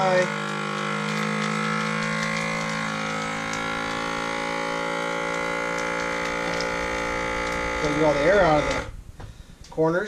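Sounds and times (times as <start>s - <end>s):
vacuum sealer pump humming: 0.0s - 9.8s.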